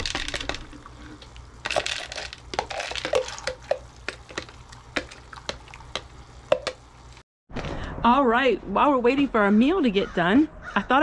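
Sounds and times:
noodles dropping into pot: 0:01.6 - 0:06.8.

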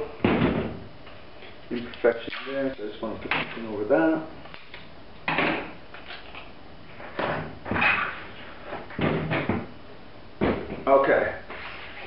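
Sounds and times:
tape scraping and rustling: 0:11.5 - 0:12.0.

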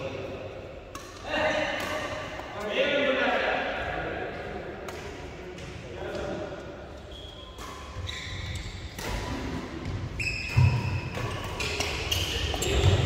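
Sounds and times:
rackets hitting shuttlecock: 0:00.8 - 0:02.7, 0:04.8 - 0:06.4, 0:07.6 - 0:13.0
shoes squeaking on court: 0:07.0 - 0:13.0.

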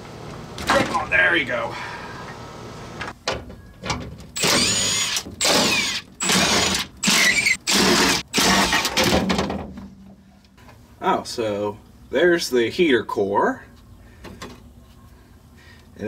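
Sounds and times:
cordless driver whirring: 0:04.4 - 0:08.8.

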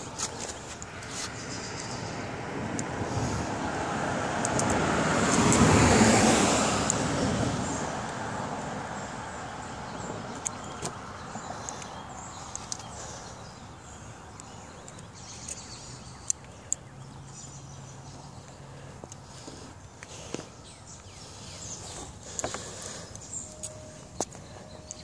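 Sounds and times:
car driving past: 0:01.6 - 0:11.0.

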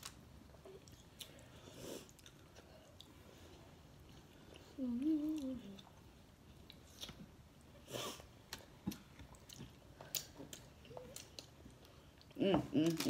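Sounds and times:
person humming: 0:04.8 - 0:05.9, 0:12.4 - 0:13.0.

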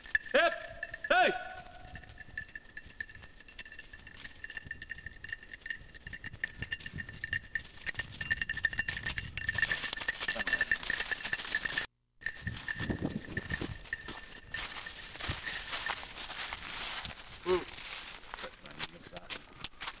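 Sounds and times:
dog collar bell jingling: 0:00.0 - 0:18.1
brushing through undergrowth: 0:12.4 - 0:20.0.

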